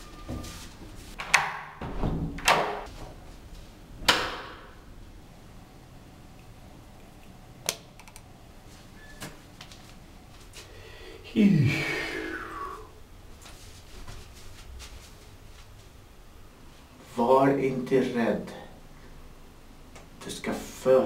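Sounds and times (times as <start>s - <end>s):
door thud: 1.2s - 2.9s, 4.0s - 4.8s.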